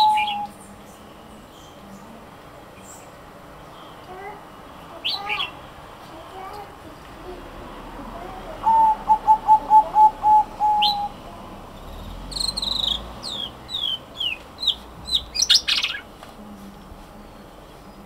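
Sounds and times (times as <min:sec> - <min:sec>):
dove cooing: 0:00.0 - 0:00.6, 0:08.1 - 0:14.0
bird chirping: 0:00.0 - 0:02.2, 0:04.7 - 0:05.7, 0:08.3 - 0:16.1.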